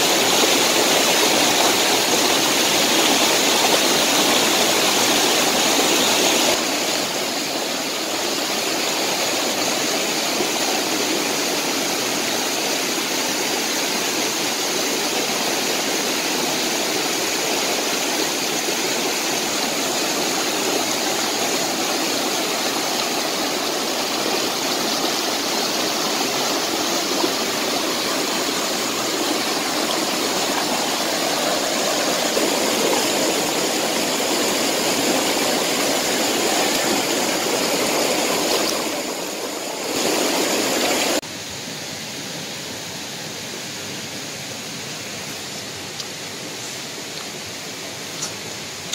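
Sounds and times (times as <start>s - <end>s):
stream rushing over rocks: 0.0s - 48.9s.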